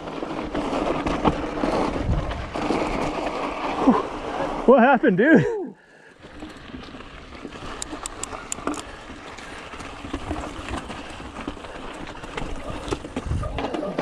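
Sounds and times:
bike tyres rumbling on trail: 0.0s - 14.0s
bike rattling knocks: 6.2s - 14.0s.

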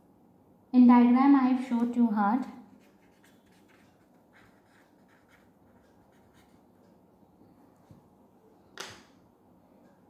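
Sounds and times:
pen scratching on paper: 2.7s - 6.6s.

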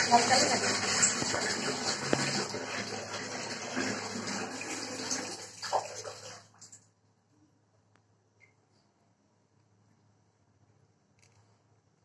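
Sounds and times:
running water: 0.0s - 6.8s.

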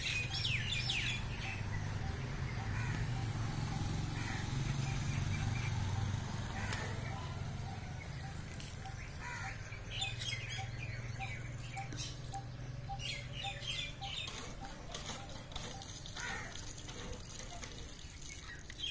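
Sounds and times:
small birds chirping: 0.0s - 18.9s.

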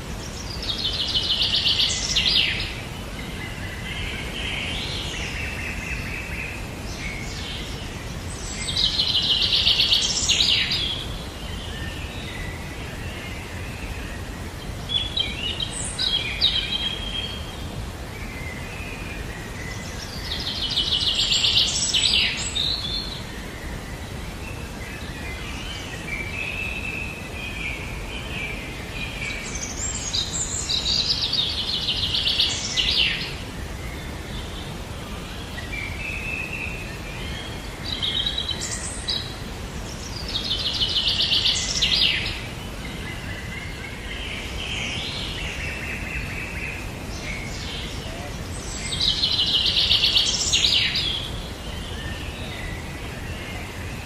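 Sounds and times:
low background noise: 0.0s - 54.0s
soft bird chirps: 0.1s - 54.0s
songbird trills: 35.4s - 54.0s.

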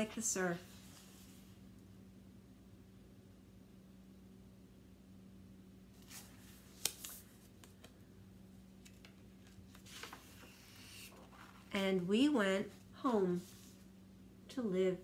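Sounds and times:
faint low hum: 0.0s - 15.0s
book page turning clicks: 6.0s - 7.9s
paper rustling: 6.0s - 7.9s, 8.8s - 11.8s.

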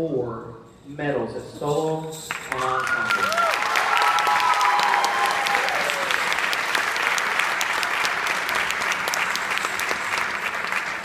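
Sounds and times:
audience applauding: 2.3s - 11.0s
person whooping: 2.8s - 6.3s.

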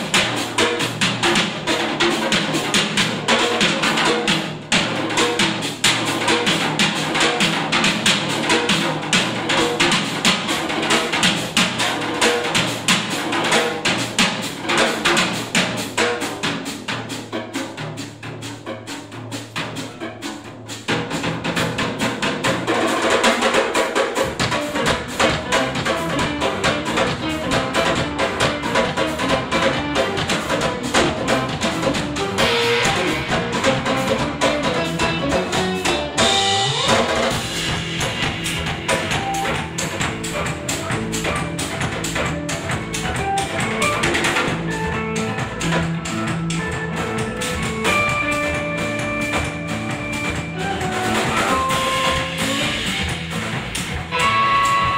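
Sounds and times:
drum kit rapid strokes: 0.0s - 54.9s
rock trio playing: 0.0s - 54.9s
electric bass notes: 24.2s - 54.9s
electric guitar: 24.2s - 54.9s
guitar note swooping in pitch: 50.6s - 53.1s, 54.1s - 54.9s.

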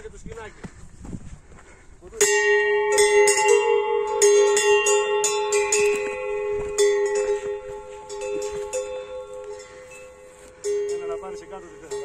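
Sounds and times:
metal bell ringing: 2.2s - 12.0s.

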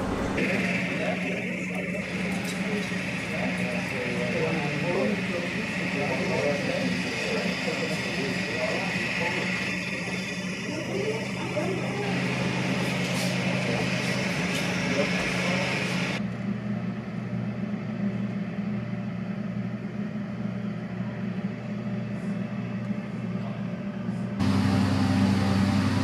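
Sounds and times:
aircraft engines humming: 0.0s - 26.0s.

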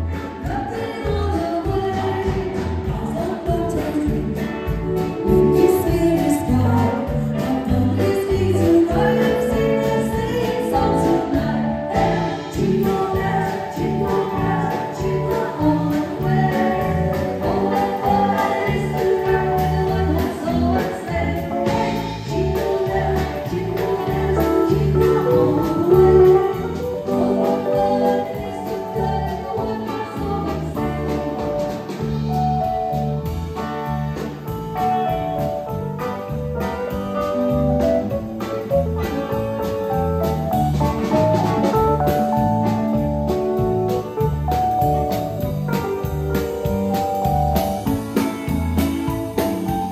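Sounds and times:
bass: 0.0s - 49.9s
drums: 0.0s - 49.9s
keyboard: 0.0s - 49.9s
person singing: 0.1s - 31.6s.

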